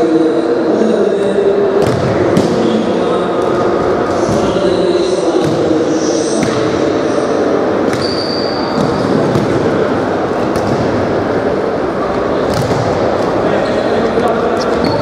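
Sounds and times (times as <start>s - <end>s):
echoing hall din: 0.0s - 15.0s
shoe squeak: 7.9s - 9.2s, 13.5s - 15.0s.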